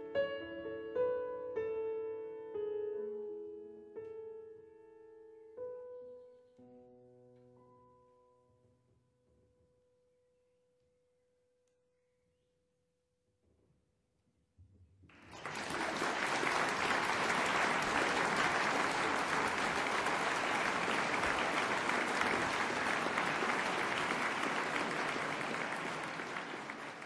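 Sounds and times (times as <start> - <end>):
audience applause: 15.1 - 27.0.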